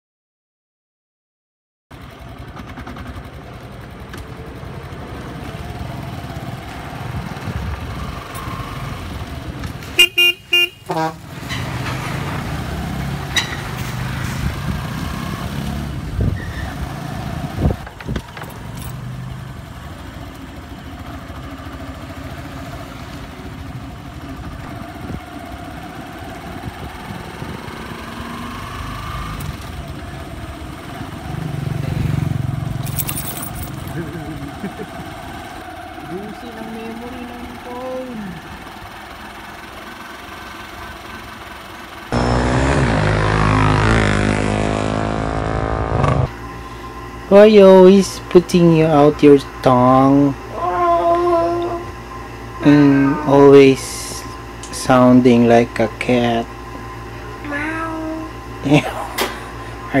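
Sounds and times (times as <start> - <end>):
motorcycle engine running: 1.9 - 12.3, 13.0 - 60.0
road traffic: 1.9 - 60.0
vehicle horn toots: 9.9 - 11.4, 42.1 - 46.3.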